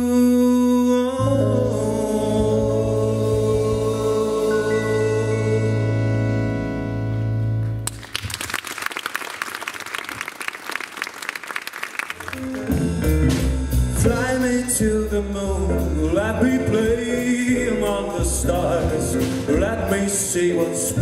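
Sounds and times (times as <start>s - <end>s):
jazz band playing: 0.0s - 7.9s, 12.0s - 21.0s
audience applauding: 7.8s - 13.0s.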